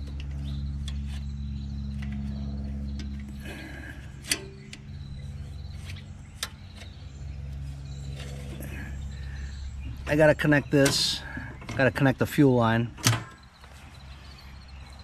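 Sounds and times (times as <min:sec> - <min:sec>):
metallic clicks of engine linkage: 0:00.0 - 0:08.7
steady low hum: 0:00.0 - 0:15.0.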